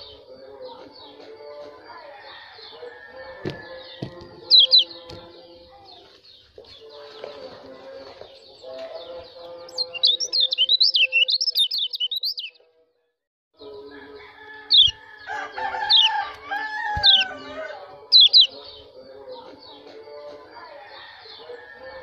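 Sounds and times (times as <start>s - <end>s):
lower bird calls: 3.7s - 5.0s, 9.7s - 12.6s, 14.7s - 15.0s, 16.9s - 18.8s
sharp downward bird chirps: 3.7s - 5.0s, 9.7s - 12.6s, 14.7s - 15.0s, 15.9s - 17.4s, 18.1s - 18.7s
bird twittering warble: 3.8s - 5.1s, 9.7s - 12.6s, 14.7s - 15.0s, 16.9s - 17.4s, 18.1s - 18.7s.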